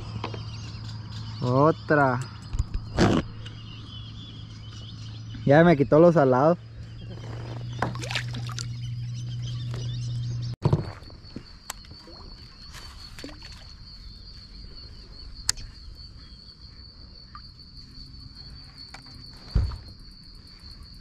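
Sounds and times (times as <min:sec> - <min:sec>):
crickets chirping: 0:00.0 - 0:21.0
low thump: 0:19.5 - 0:19.9.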